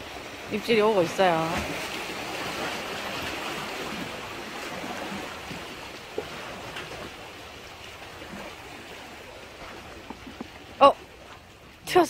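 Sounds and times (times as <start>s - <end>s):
waves lapping against concrete: 0.0s - 12.0s.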